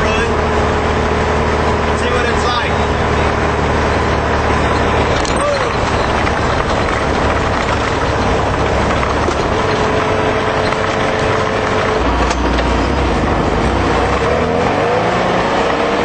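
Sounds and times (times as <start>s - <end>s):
car engine running: 0.0s - 16.0s
tyre and body rattle: 4.1s - 13.0s.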